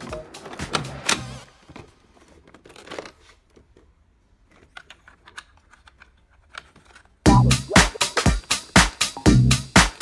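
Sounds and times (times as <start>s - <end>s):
plastic packaging rustling: 1.5s - 3.9s.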